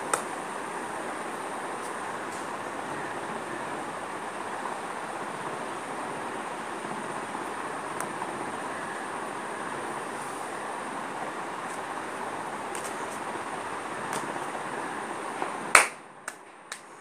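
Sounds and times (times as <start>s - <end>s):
faint high whine: 0.0s - 16.2s
hand clap: 0.1s - 0.3s, 15.7s - 16.9s.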